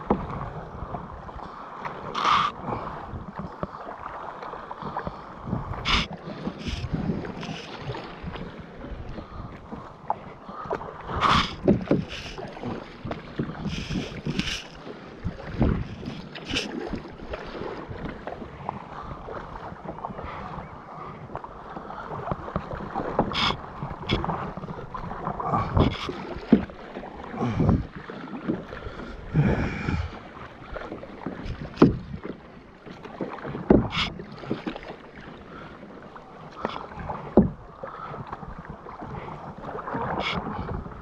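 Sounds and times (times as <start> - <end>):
paddle splashes and drips: 0.0 - 41.0
water washing against kayak hull: 0.0 - 41.0
wind buffeting microphone: 4.8 - 32.4, 36.9 - 41.0.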